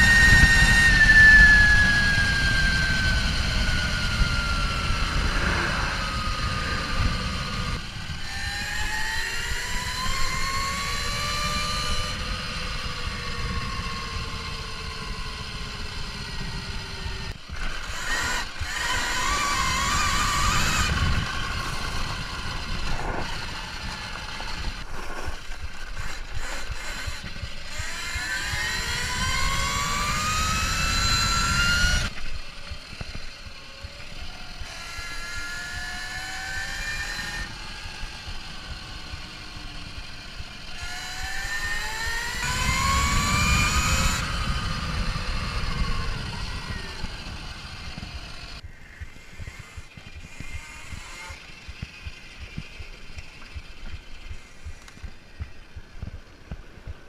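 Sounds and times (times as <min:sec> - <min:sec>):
electric motor whine: 0:00.0 - 0:57.0
tyres and wind rumble: 0:00.0 - 0:57.0.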